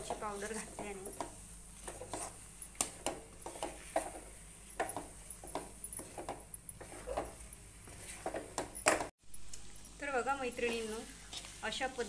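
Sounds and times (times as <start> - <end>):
spoon scraping a metal pan: 0.0 - 8.5.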